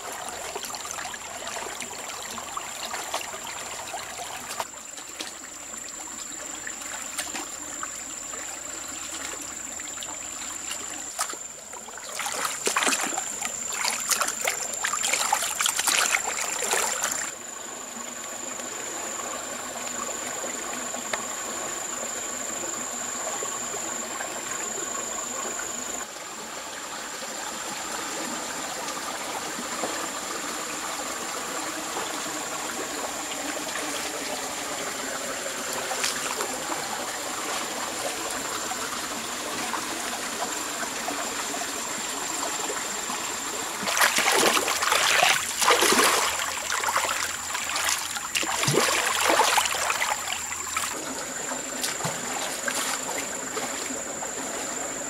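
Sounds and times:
stream water rushing: 0:00.0 - 0:55.0.

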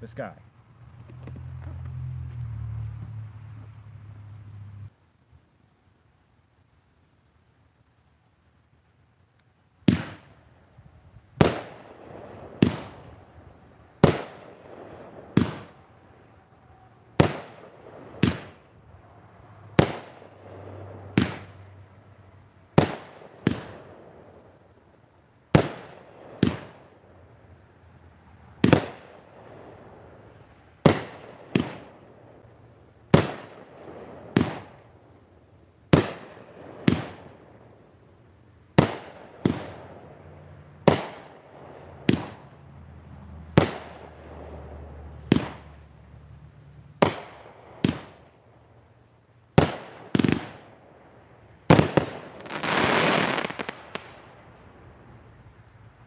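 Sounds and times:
firework bangs: 0:09.8 - 0:10.5, 0:11.3 - 0:21.8, 0:22.7 - 0:24.9, 0:25.5 - 0:27.6, 0:28.3 - 0:35.2, 0:35.9 - 0:38.0, 0:38.7 - 0:40.2, 0:40.8 - 0:42.6, 0:43.2 - 0:46.0, 0:47.0 - 0:48.7, 0:49.5 - 0:54.6.

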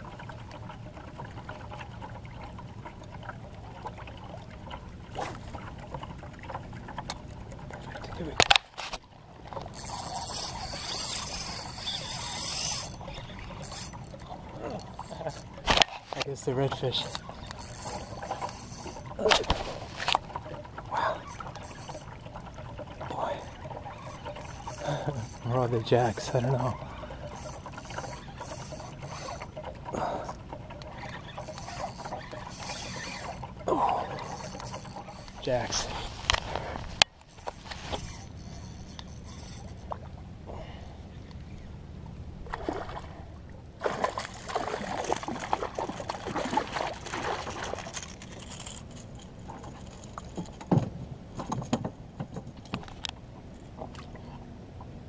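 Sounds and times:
low steady hum: 0:00.0 - 0:55.0
fishing line hissing off reel: 0:09.7 - 0:15.4, 0:17.0 - 0:20.1, 0:21.3 - 0:22.1, 0:23.4 - 0:25.5, 0:26.1 - 0:29.5, 0:30.2 - 0:33.5, 0:34.1 - 0:39.8.

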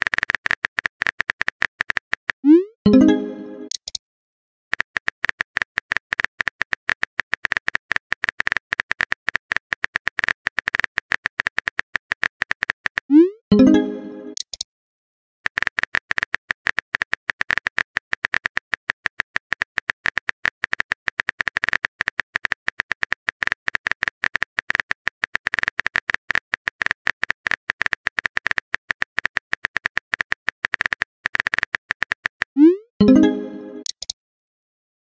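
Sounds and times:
phone keyboard clicks: 0:00.0 - 0:02.4, 0:03.7 - 0:04.0, 0:14.4 - 0:14.7, 0:15.5 - 0:32.6, 0:33.8 - 0:34.2.

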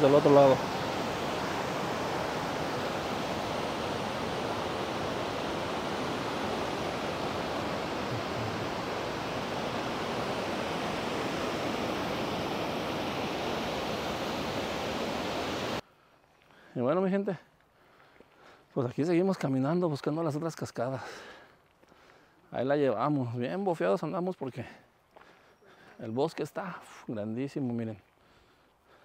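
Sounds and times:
waterfall rushing: 0:00.0 - 0:15.8.

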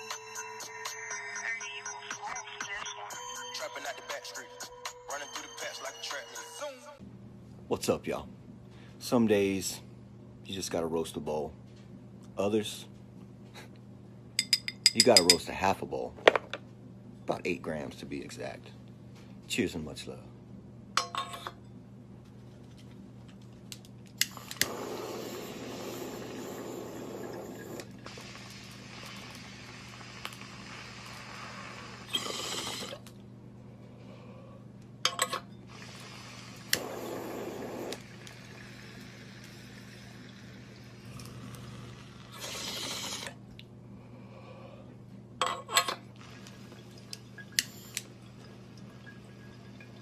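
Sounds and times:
glass clinking: 0:14.4 - 0:15.4, 0:35.1 - 0:35.6, 0:48.3 - 0:50.0
torch flame hissing: 0:24.3 - 0:33.0, 0:35.8 - 0:40.1, 0:41.8 - 0:43.4
breathy exhale: 0:41.3 - 0:45.0.

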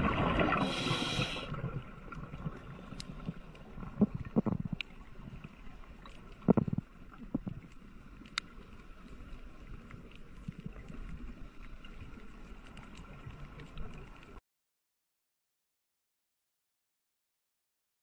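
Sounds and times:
underwater rumble and hiss: 0:00.0 - 0:14.4.

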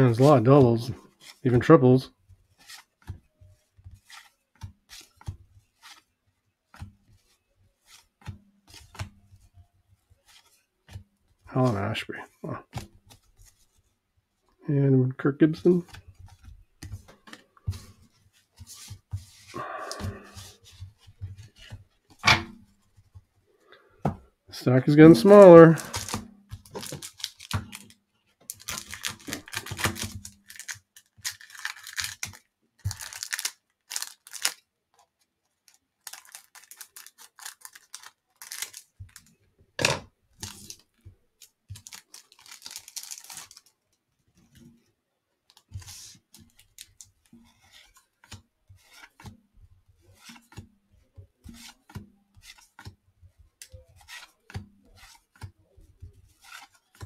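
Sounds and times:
cellophane wrappers crinkling and tearing: 0:25.2 - 0:34.7, 0:35.5 - 0:39.3, 0:40.4 - 0:43.9, 0:45.5 - 0:47.1.

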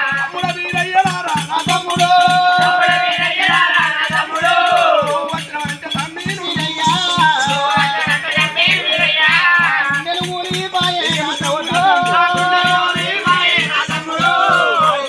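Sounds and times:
fast drumming: 0:00.0 - 0:15.0
jingling percussion: 0:00.0 - 0:15.0
person singing: 0:06.4 - 0:15.0.

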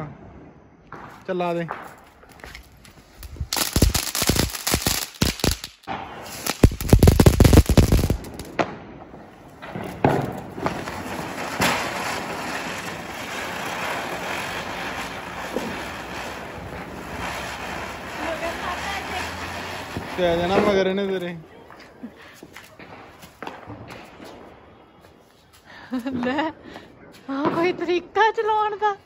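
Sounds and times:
firework crackling with sharp pops: 0:00.8 - 0:26.6, 0:27.2 - 0:29.0
firework hissing: 0:02.4 - 0:08.6, 0:09.2 - 0:21.4.

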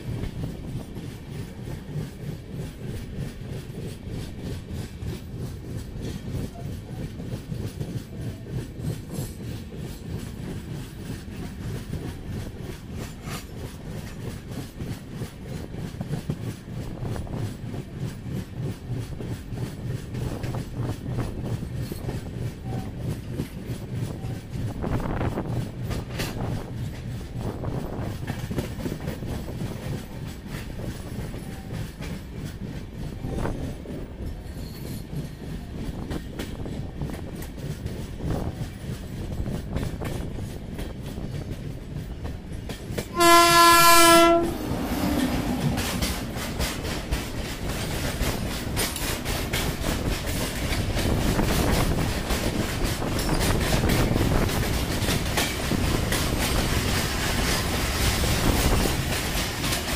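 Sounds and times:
freight train passing: 0:00.0 - 0:59.9
train wheels rumbling: 0:00.0 - 0:59.9
locomotive horn blast: 0:43.1 - 0:45.3.

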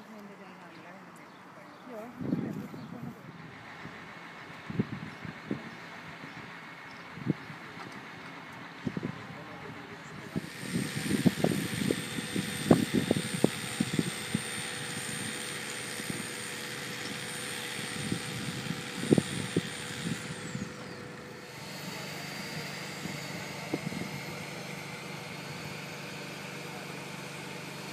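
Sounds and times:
crane engine humming: 0:02.9 - 0:27.9.

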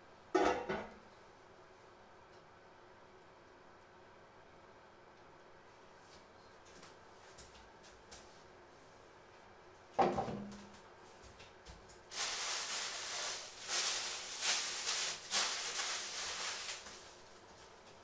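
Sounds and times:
plastic bag crinkling: 0:12.1 - 0:17.9.

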